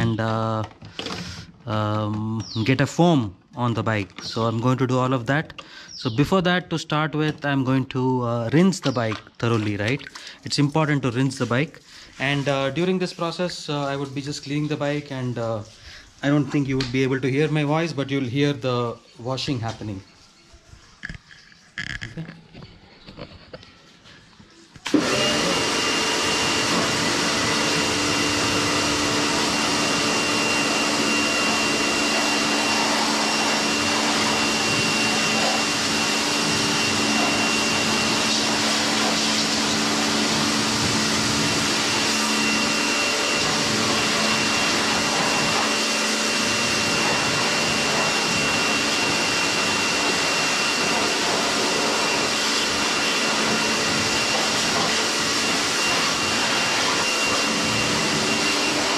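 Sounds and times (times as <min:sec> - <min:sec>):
pressure washer motor whine: 0:00.0 - 0:06.3, 0:08.2 - 0:10.4, 0:24.8 - 0:58.9
high-pressure water jet hissing: 0:24.9 - 0:58.9.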